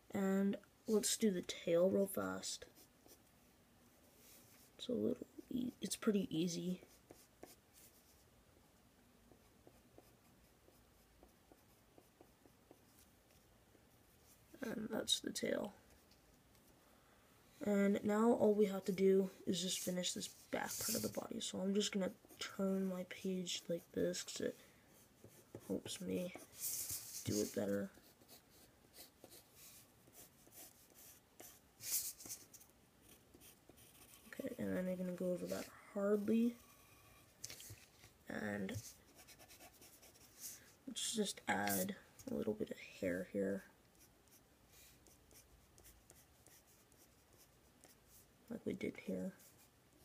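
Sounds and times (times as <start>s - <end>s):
pencil scratching on paper: 6.8s - 8.2s, 9.3s - 13.4s, 18.9s - 37.9s, 38.6s - 40.8s, 43.9s - 48.3s.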